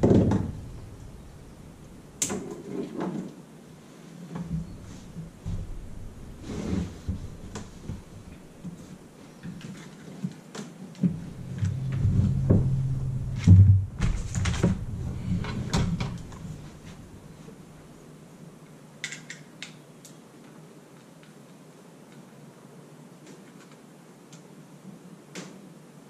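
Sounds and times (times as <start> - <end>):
dull rumbling: 0.0 - 2.4, 4.5 - 9.2, 11.0 - 18.0.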